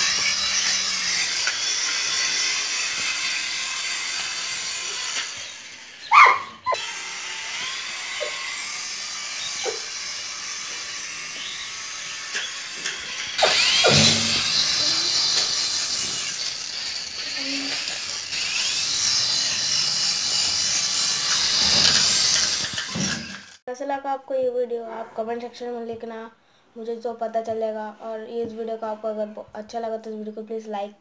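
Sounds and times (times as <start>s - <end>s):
toy helicopter rotor motors whirring: 0.0s - 23.6s.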